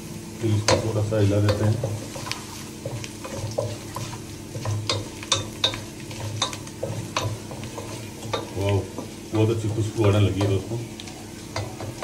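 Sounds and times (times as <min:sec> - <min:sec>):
spices sizzling in hot oil: 0:00.0 - 0:12.0
spatula scraping saucepan: 0:01.5 - 0:10.7.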